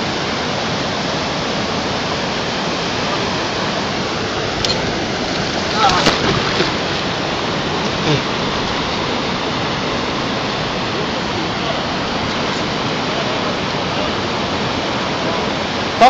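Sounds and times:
river water rushing: 0:00.0 - 0:16.0
fish splashing in water: 0:04.5 - 0:08.4.

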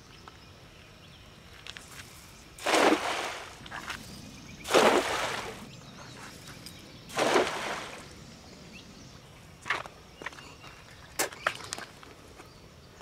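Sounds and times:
net splashing through water: 0:02.6 - 0:03.6, 0:04.6 - 0:05.7, 0:07.1 - 0:08.1.

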